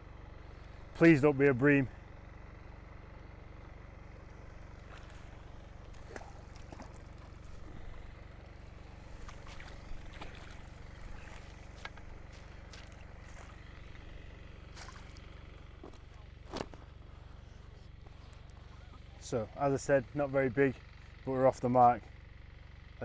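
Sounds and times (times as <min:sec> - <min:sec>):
aerator pump humming: 0:00.0 - 0:23.0
fish splashing at water surface: 0:04.6 - 0:16.7.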